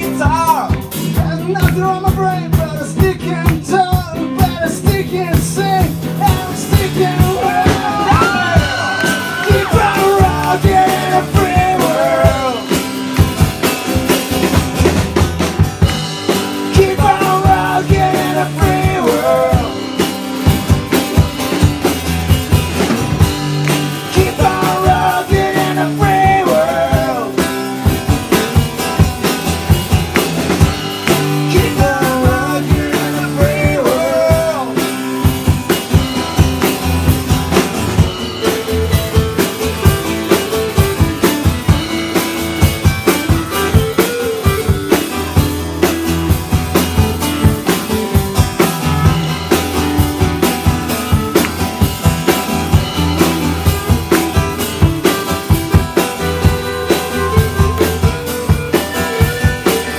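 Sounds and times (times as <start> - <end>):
man singing: 0.0 - 13.0, 16.5 - 20.2, 23.9 - 27.8, 31.0 - 35.1, 56.4 - 59.9
acoustic guitar: 0.0 - 59.9
drum kit: 0.0 - 59.9
second guitar: 0.0 - 59.9.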